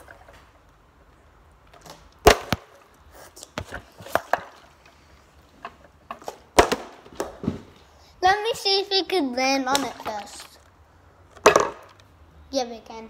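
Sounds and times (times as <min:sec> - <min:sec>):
plastic bottle landing knocks: 0:11.4 - 0:11.9.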